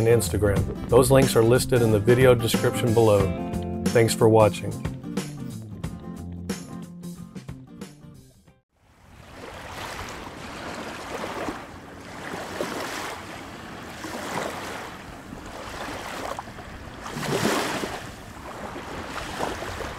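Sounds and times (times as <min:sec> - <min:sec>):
small waves washing against rocks: 0:09.1 - 0:19.9.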